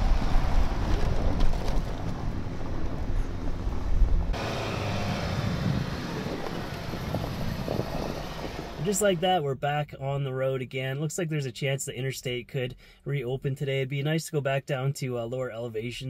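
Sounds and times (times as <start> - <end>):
vehicle engine running: 0.0 - 9.2
wind buffeting microphone: 0.0 - 9.2.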